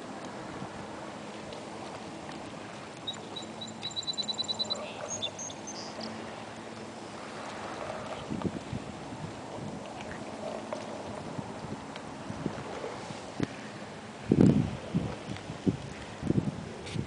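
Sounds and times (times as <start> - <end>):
small bird singing: 3.0 - 6.0.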